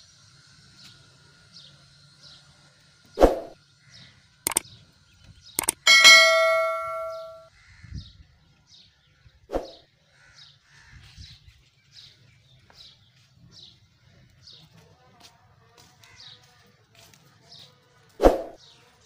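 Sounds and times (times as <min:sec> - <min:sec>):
small bird chirping: 0:05.2 - 0:07.5
bright chime ding: 0:05.6 - 0:07.5.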